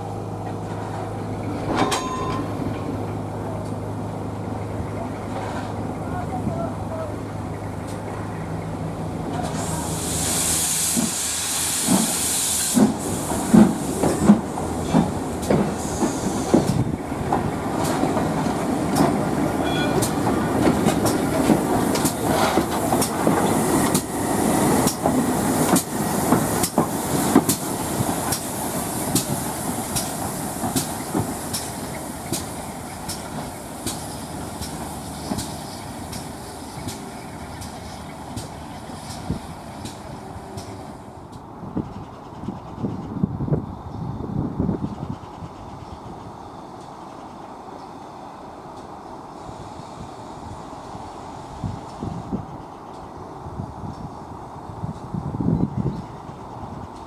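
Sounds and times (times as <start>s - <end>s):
steam locomotive beats: 7.7s - 41.4s
steam hiss: 9.4s - 17.0s, 17.6s - 41.2s, 49.2s - 52.3s
train wheel clicks: 10.8s - 43.1s, 53.8s - 54.1s.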